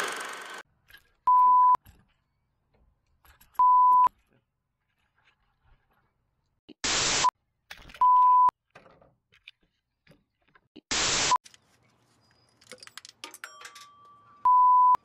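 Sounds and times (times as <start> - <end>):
static hiss burst: 6.8 - 7.3, 10.9 - 11.4.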